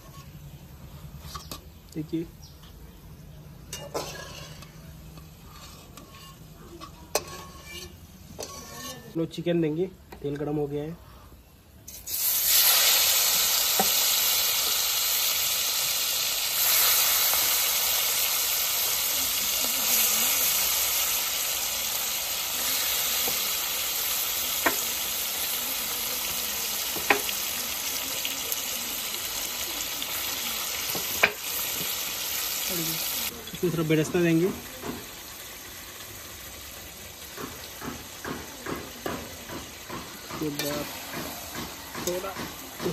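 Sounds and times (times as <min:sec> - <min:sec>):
chicken sizzling in hot oil: 0:11.9 - 0:42.9.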